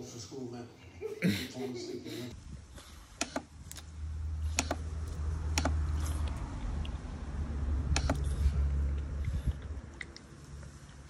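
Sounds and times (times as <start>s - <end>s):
sharp clicks and taps: 3.2s - 3.9s, 4.5s - 4.8s, 5.5s - 7.0s, 7.9s - 8.2s.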